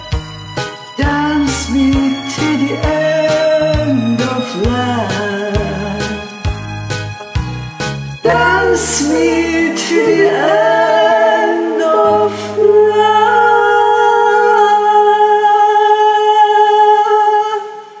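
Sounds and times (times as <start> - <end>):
soft backing track: 0.0 - 15.7
women singing a duet: 8.2 - 18.0.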